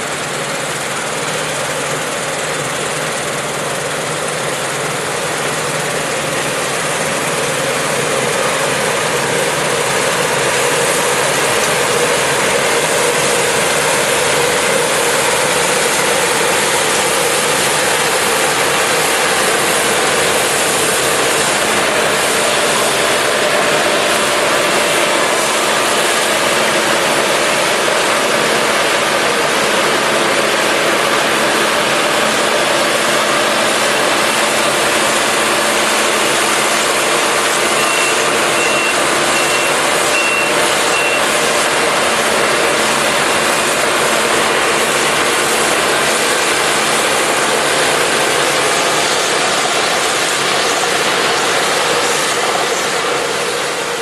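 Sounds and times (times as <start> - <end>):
combine harvester drone: 0.0 - 54.0
high beeps: 37.8 - 41.2.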